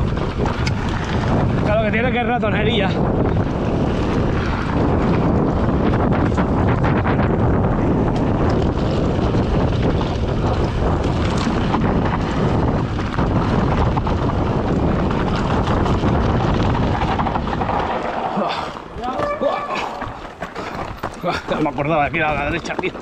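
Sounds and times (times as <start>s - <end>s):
clicks and knocks of stones: 0.0s - 1.6s, 10.0s - 23.0s
bike tyres rolling on stony trail: 0.0s - 23.0s
wind on microphone: 0.0s - 23.0s.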